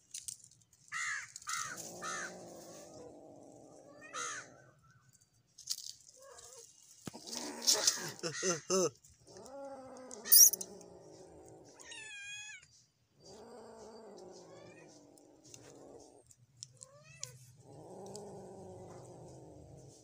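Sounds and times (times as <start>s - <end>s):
cat growling low: 1.8s - 4.6s, 7.2s - 12.1s, 13.2s - 20.0s.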